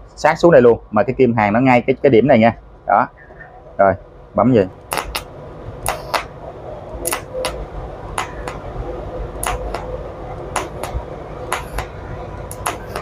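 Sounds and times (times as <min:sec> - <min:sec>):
faint steady hum: 0:00.0 - 0:13.0
welding torch clicks: 0:04.8 - 0:06.3, 0:07.0 - 0:08.6, 0:09.4 - 0:09.9, 0:10.5 - 0:13.0.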